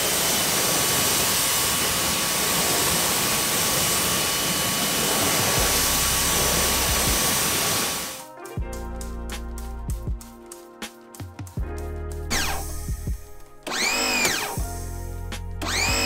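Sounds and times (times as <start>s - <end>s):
thin steady whine: 0.0s - 8.2s
pressure washer spraying: 0.0s - 8.3s, 12.3s - 13.0s, 13.6s - 15.0s, 15.6s - 16.0s.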